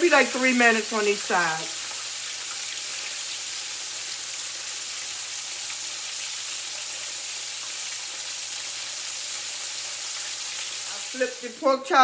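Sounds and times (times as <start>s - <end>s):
pork chops sizzling in oil: 0.0s - 12.0s.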